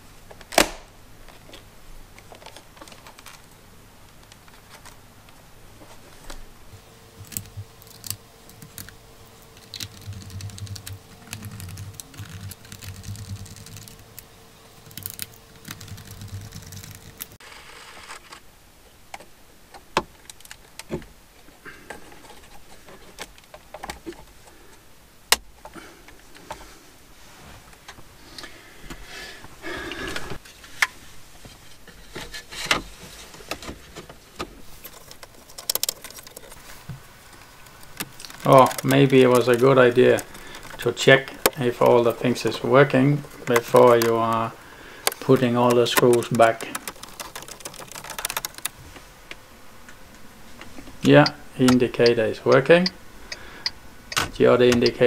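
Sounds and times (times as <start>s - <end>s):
faint steady hum: 0.0s - 55.0s
plastic housing clicks and rattles: 34.8s - 36.6s, 37.7s - 42.2s, 45.1s - 48.8s.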